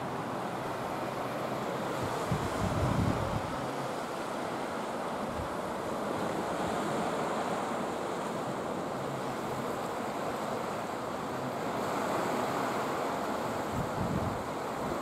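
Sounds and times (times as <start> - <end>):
surf washing over rocks: 0.0 - 15.0
wind on microphone: 2.0 - 3.6, 13.7 - 15.0.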